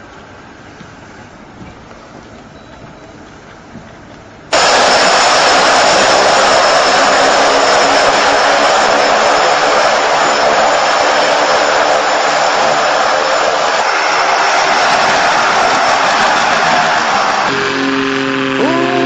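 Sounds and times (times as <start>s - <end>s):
propeller engine drone: 4.5s - 19.0s.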